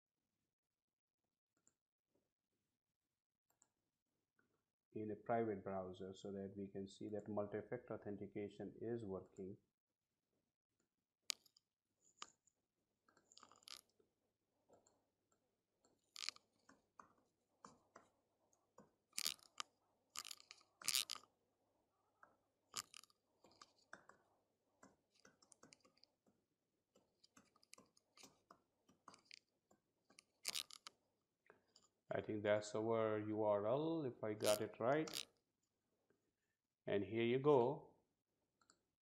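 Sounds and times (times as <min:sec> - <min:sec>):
keyboard and mouse clicks: 0:15.8 - 0:18.2, 0:18.8 - 0:21.2, 0:22.2 - 0:24.2, 0:24.8 - 0:26.4, 0:27.0 - 0:31.0, 0:34.4 - 0:35.3.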